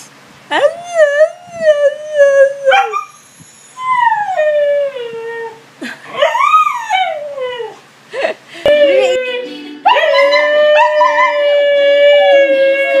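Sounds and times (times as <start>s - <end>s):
dog howling: 8.7s - 13.0s.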